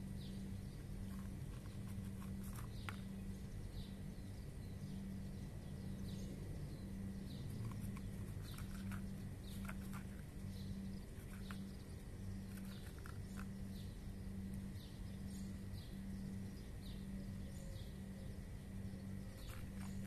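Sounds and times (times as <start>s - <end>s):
steady low hum: 0.0s - 20.0s
cats crunching kibble: 0.8s - 3.3s, 7.5s - 10.5s, 12.3s - 13.7s, 19.4s - 20.0s.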